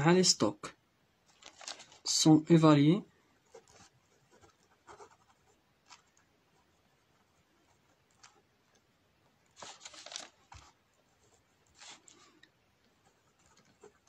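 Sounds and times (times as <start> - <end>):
pen scratching on paper: 3.4 - 8.5, 13.0 - 14.0.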